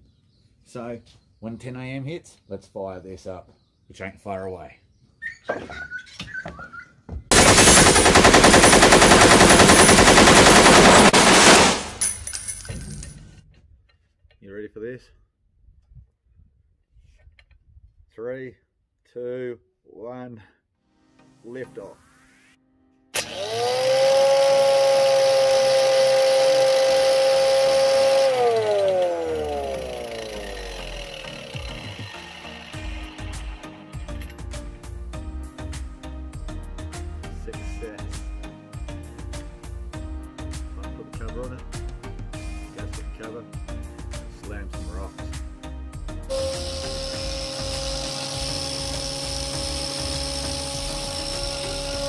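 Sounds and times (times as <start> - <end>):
chain rattling in steel housing: 12.0 - 13.5
angle grinder motor: 23.2 - 34.4, 46.3 - 52.0.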